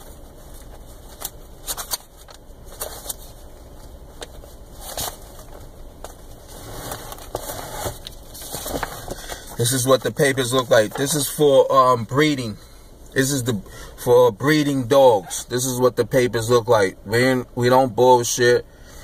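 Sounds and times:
paper rustling and shuffling: 0.0 - 11.4
low steady hum: 0.0 - 19.0.

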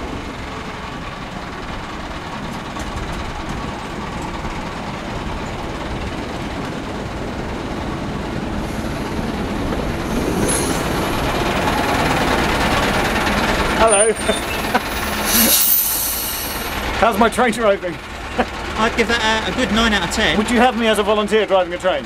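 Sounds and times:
miniature diesel train running: 0.0 - 22.0
high squeal: 10.1 - 12.3, 13.8 - 16.8.

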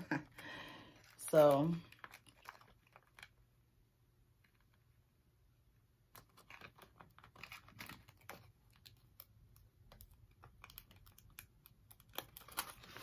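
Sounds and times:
fingernails clicking and scratching: 6.1 - 13.0.

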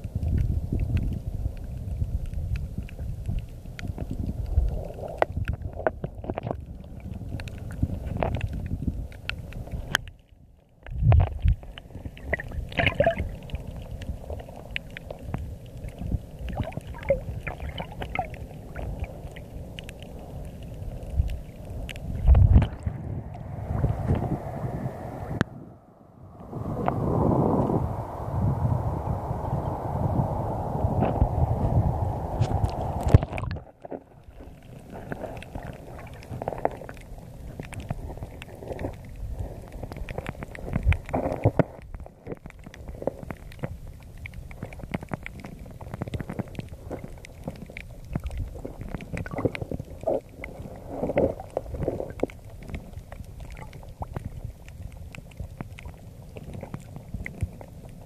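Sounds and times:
wind noise: 0.0 - 10.2, 10.9 - 58.0
underwater rumbling and knocking: 0.0 - 25.5, 30.7 - 58.0
bubbly gurgles: 10.8 - 25.4, 30.8 - 58.0
muffled underwater sound: 11.0 - 30.0
water splashing: 11.8 - 25.0, 32.2 - 41.6, 42.4 - 58.0.

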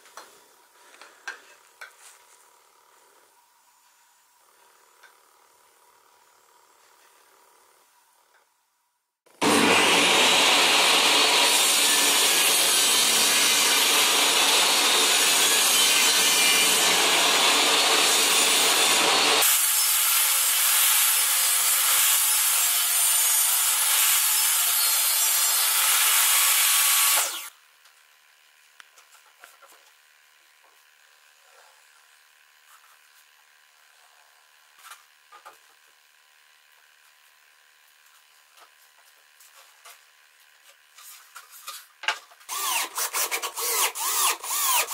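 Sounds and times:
table saw cutting board: 9.3 - 27.5, 38.2 - 44.9.

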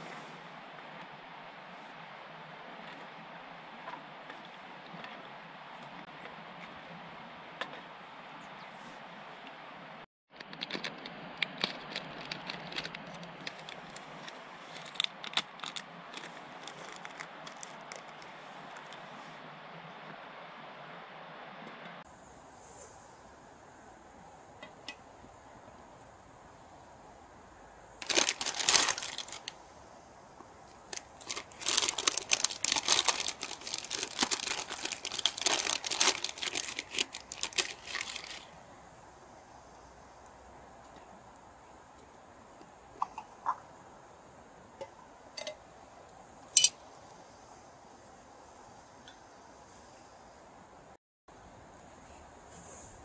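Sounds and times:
plastic packet crinkling and tearing: 11.6 - 19.0, 28.0 - 29.6, 30.7 - 38.5.

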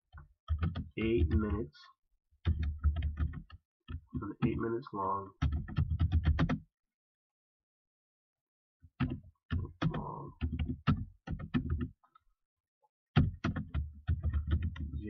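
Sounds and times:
computer keyboard key clicks: 0.5 - 1.3, 13.2 - 14.9.

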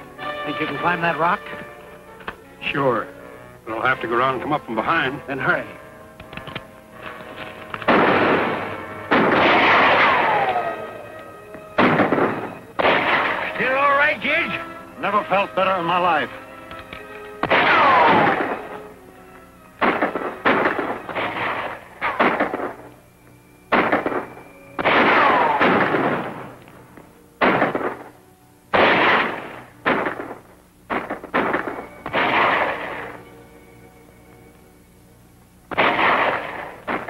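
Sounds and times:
gunshots echoing: 6.2 - 11.0, 11.8 - 14.2, 17.4 - 18.9, 19.8 - 22.9, 23.7 - 26.6, 27.4 - 33.4, 35.7 - 37.0
ricochet whine: 6.2 - 14.6, 16.6 - 37.0.

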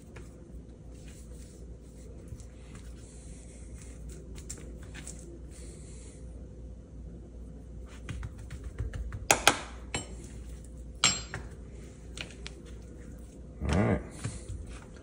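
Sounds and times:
dishes and utensils clinking: 9.9 - 10.4, 11.0 - 11.6.

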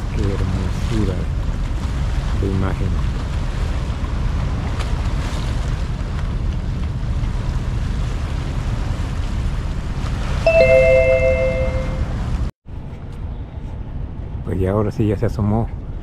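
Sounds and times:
sea surf: 0.0 - 12.3
wind on microphone: 0.0 - 14.5
two-note horn: 10.5 - 12.2.

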